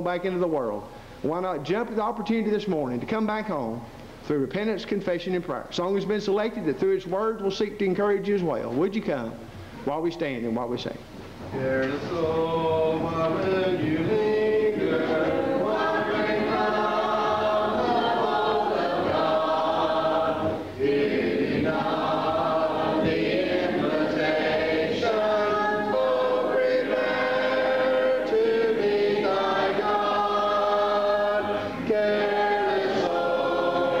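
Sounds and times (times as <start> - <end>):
congregation singing a cappella: 11.5 - 34.0.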